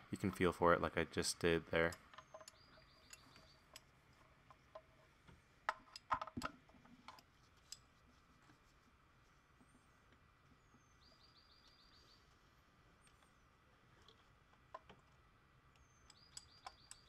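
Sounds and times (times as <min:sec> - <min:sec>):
tool clicks and knocks: 0:01.9 - 0:07.8.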